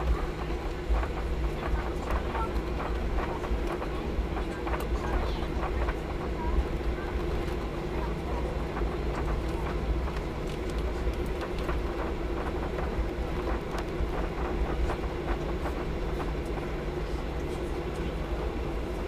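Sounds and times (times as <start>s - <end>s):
aircraft engine hum: 0.0s - 19.0s.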